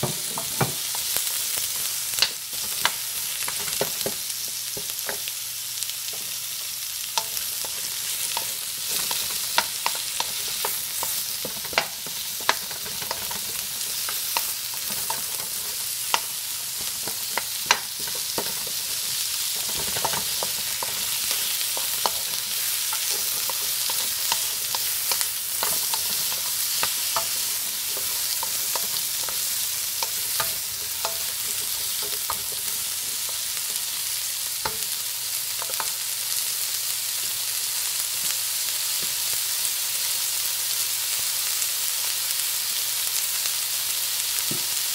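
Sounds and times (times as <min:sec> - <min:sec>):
vegetables sizzling in hot oil: 0:00.0 - 0:44.9
wooden spoon stirring in wok: 0:07.2 - 0:34.0.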